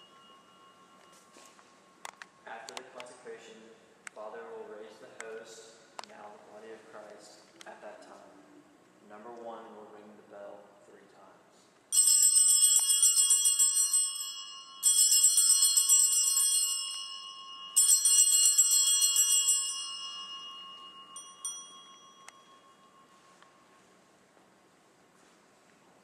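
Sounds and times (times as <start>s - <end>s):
light bell clinks: 0.0s - 2.2s, 11.9s - 23.9s
small brass bells jangling: 0.0s - 2.2s, 11.9s - 23.7s.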